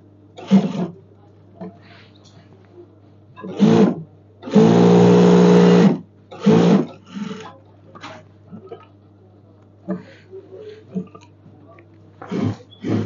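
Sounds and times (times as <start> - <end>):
sewing machine stitching: 0.4 - 1.0, 3.4 - 7.5, 12.2 - 13.0.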